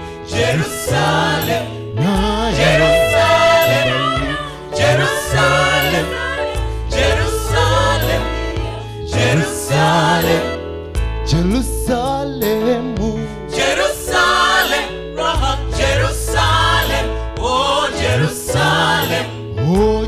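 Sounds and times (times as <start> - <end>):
mixed choir singing gospel: 0.0 - 10.7, 13.2 - 20.0
low bass line: 0.0 - 13.5.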